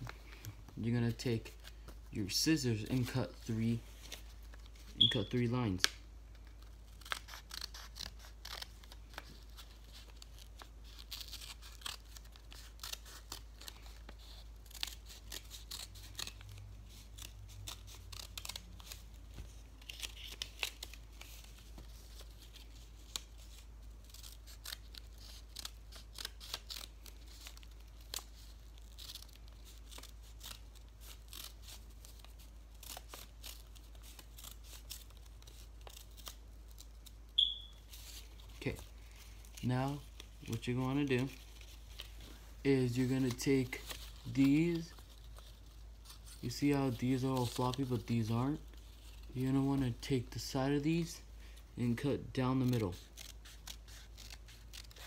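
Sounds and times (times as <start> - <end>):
paper being handled: 0.0 - 55.0
scissors snipping paper: 5.8 - 37.2, 52.4 - 55.0.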